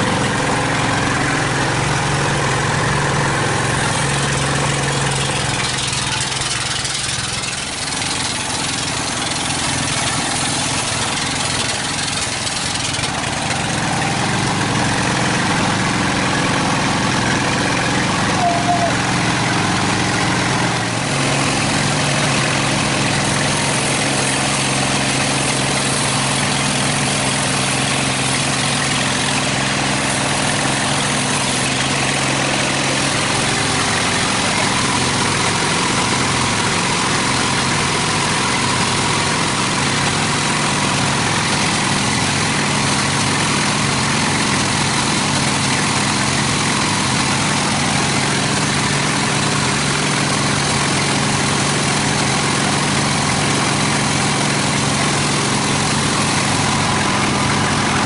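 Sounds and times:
sawmill machine hum: 0:00.0 - 0:58.0
saw blade hiss: 0:17.9 - 0:58.0.

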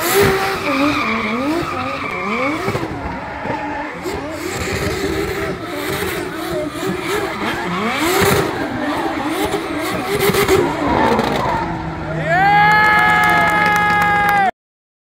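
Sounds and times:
car engine revving hard: 0:00.0 - 0:13.3
tyres skidding: 0:00.0 - 0:14.4.

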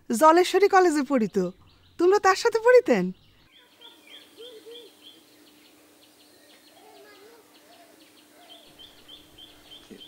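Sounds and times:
faint steady hum: 0:00.0 - 0:10.0
small birds chirping: 0:00.2 - 0:10.0
lower arching bird calls: 0:03.4 - 0:10.0.

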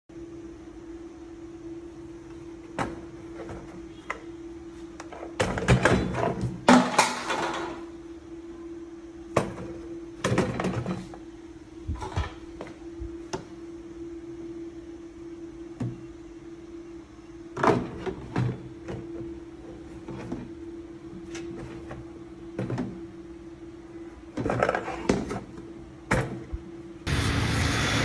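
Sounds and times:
steady low hum: 0:00.1 - 0:28.0
knocks and clatters of parts: 0:05.0 - 0:07.8, 0:09.4 - 0:11.1.

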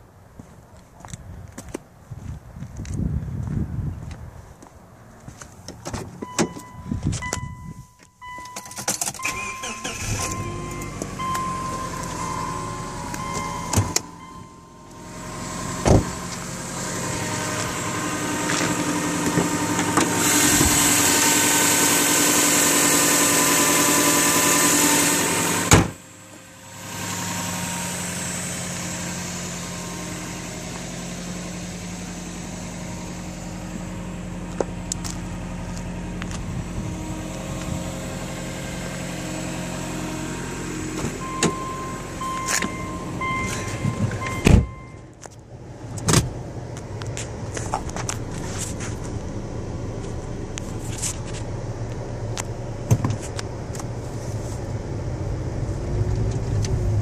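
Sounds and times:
car engine starting and idling: 0:05.0 - 0:57.0.

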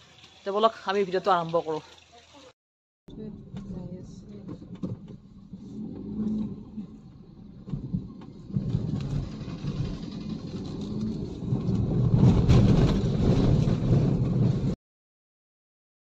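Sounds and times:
car engine and road rumble: 0:03.1 - 0:14.8.

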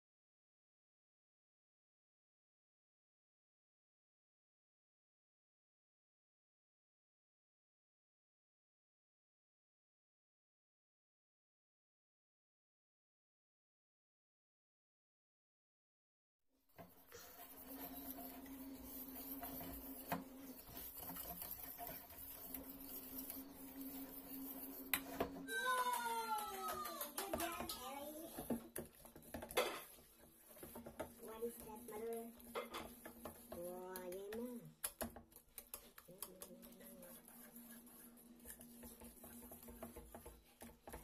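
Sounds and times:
whisk clinking on metal: 0:16.8 - 0:25.9
whisk scraping a saucepan: 0:16.8 - 0:41.0.

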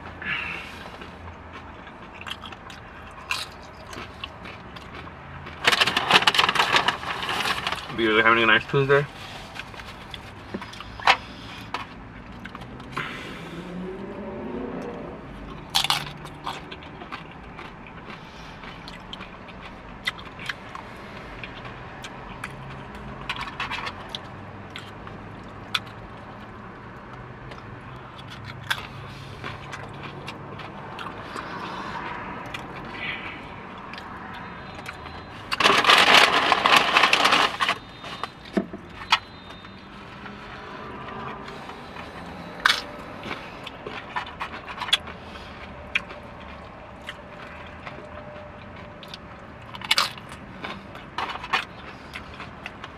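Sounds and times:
food packaging scraping and crinkling: 0:02.5 - 0:12.0, 0:34.8 - 0:40.6
packaging rustling: 0:05.6 - 0:08.0, 0:35.5 - 0:38.4.

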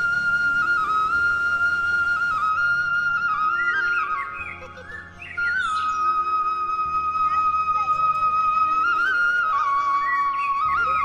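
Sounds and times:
low steady drone: 0:00.0 - 0:03.6
flute-like melody: 0:00.0 - 0:11.0.

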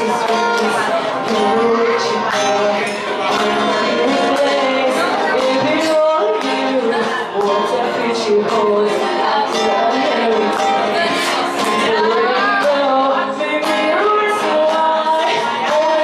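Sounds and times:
strummed acoustic guitar: 0:00.0 - 0:16.0
woman singing into a microphone: 0:00.0 - 0:16.0.

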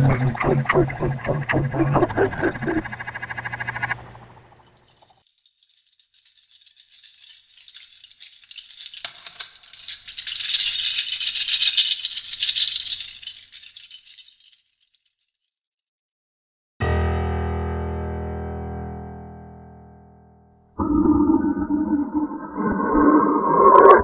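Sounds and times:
dry fast rattling: 0:02.3 - 0:14.8.

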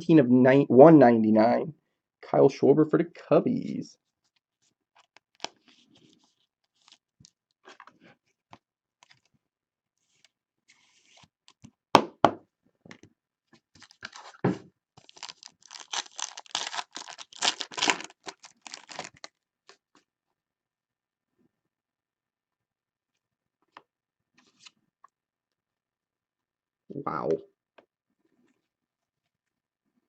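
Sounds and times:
packaging crinkling and tearing: 0:05.0 - 0:05.7, 0:13.8 - 0:14.4, 0:15.0 - 0:19.8.

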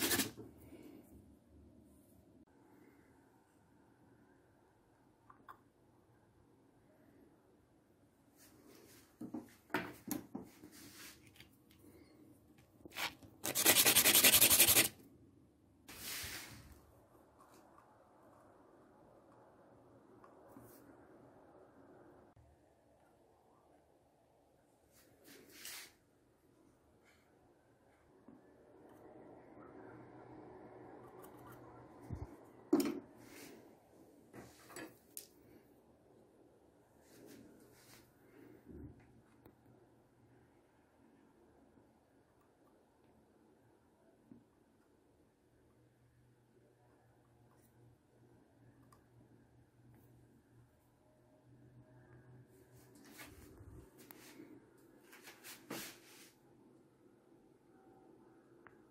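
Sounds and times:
rubbing: 0:12.9 - 0:14.9.

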